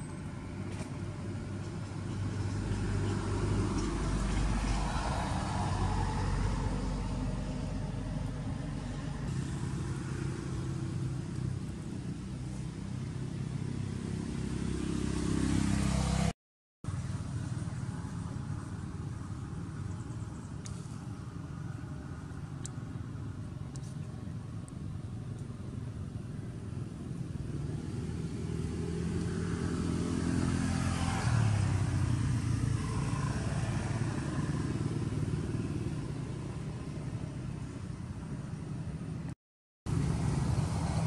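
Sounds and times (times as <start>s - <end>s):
vehicle engine passing: 1.2s - 16.3s, 26.7s - 38.0s, 39.9s - 41.0s.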